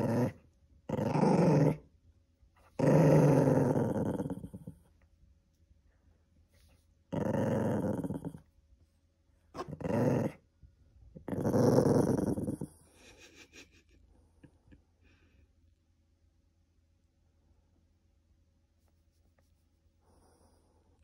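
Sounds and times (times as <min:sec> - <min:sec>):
small dog growling: 0:00.0 - 0:01.9, 0:02.8 - 0:04.8, 0:07.1 - 0:08.5, 0:09.6 - 0:10.4, 0:11.2 - 0:12.9.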